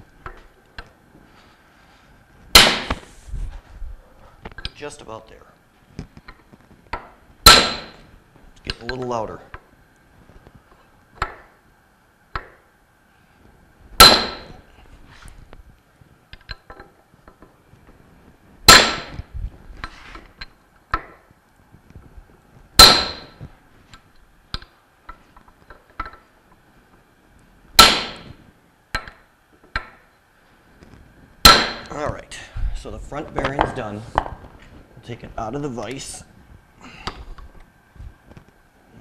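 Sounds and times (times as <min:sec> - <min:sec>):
hammer striking metal pipe: 0:02.6 - 0:03.0, 0:07.4 - 0:08.0, 0:14.0 - 0:14.6, 0:18.7 - 0:19.2, 0:22.8 - 0:23.4, 0:27.8 - 0:28.3, 0:31.4 - 0:31.9.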